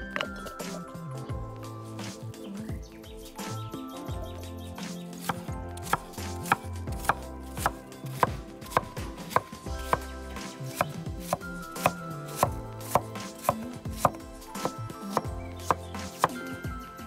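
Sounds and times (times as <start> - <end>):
knife chopping on wooden board: 5.2 - 16.4.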